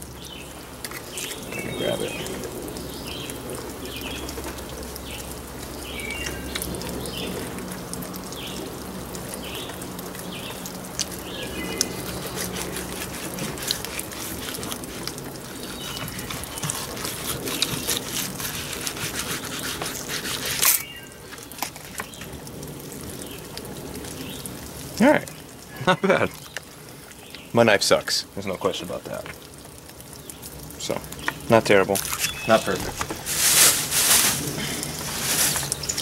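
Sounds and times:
knife slicing fish skin: 11.8s - 20.8s.

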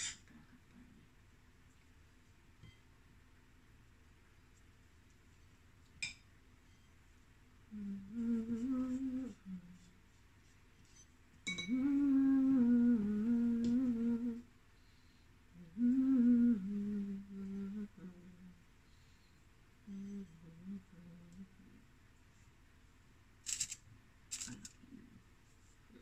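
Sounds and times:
woman humming slow tune: 7.7s - 10.0s, 11.5s - 14.5s, 15.5s - 18.6s, 19.8s - 21.8s.

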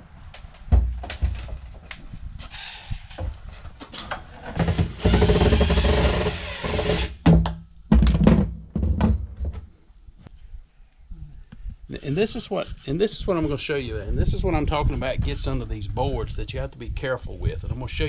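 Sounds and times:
heavy thumps of board: 0.6s - 1.8s, 6.8s - 9.7s
cordless drill running: 4.6s - 7.2s.

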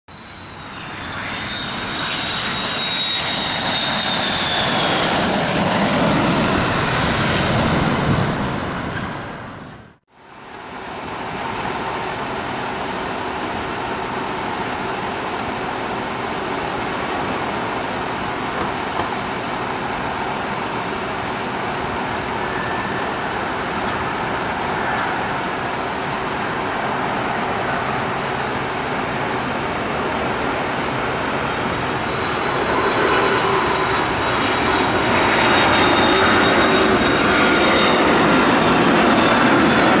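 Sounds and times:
jet engines on approach: 0.1s - 40.0s
road traffic: 9.7s - 40.0s
thin high tone: 11.2s - 40.0s.

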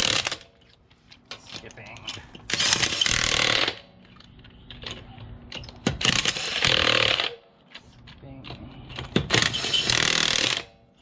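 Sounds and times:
impact wrench hammering: 9.0s - 10.8s.

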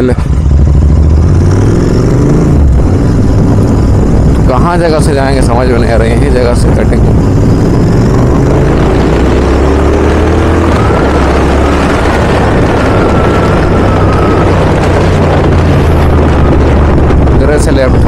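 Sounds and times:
motorcycle engine accelerating: 0.0s - 18.0s.

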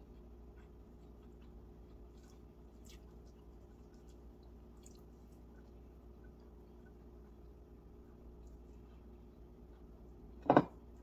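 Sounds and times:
chewing and mouth clicks: 0.0s - 7.0s.

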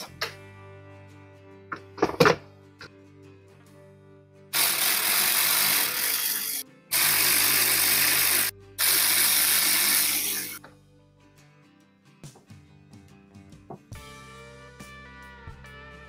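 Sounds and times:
cordless power ratchet running: 4.6s - 10.6s.

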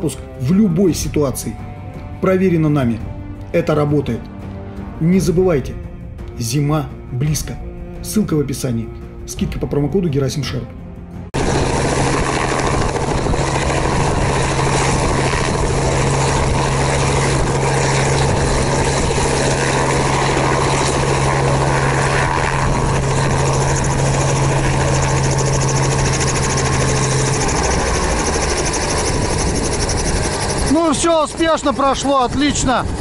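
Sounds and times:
helicopter rotor and engine: 11.3s - 33.0s.

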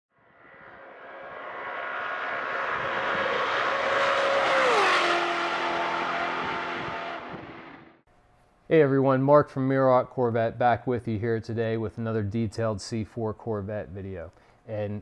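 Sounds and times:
car engine passing by: 0.2s - 8.0s.

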